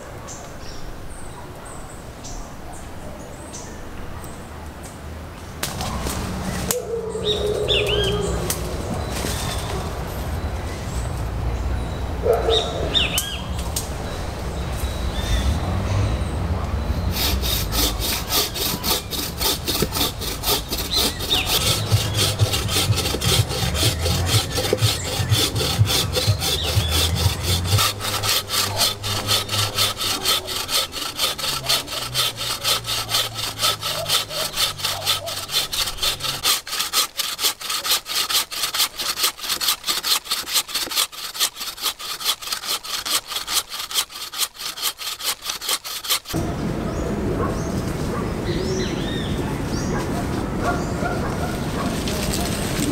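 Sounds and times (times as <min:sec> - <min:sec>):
saw cutting through log: 0:16.7 - 0:46.4.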